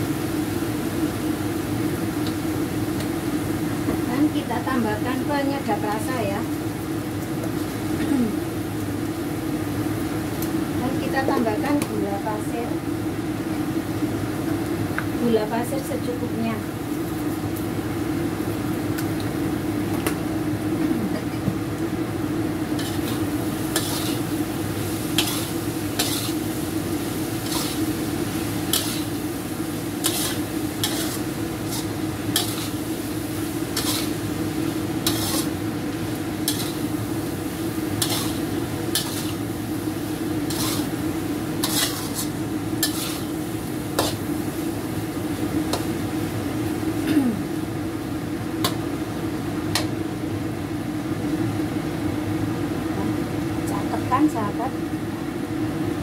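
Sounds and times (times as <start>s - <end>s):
food sizzling: 0.0s - 56.0s
steady low hum: 19.5s - 51.8s
spatula scraping a pan: 22.8s - 24.4s, 25.1s - 26.5s, 27.3s - 28.0s, 28.6s - 29.2s, 30.0s - 32.9s, 33.7s - 35.6s, 36.4s - 36.9s, 37.9s - 39.4s, 40.3s - 44.3s.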